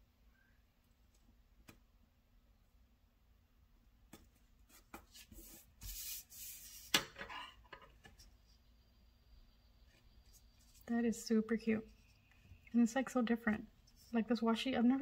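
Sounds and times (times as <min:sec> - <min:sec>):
paper rustling and rubbing: 0:04.7 - 0:07.5.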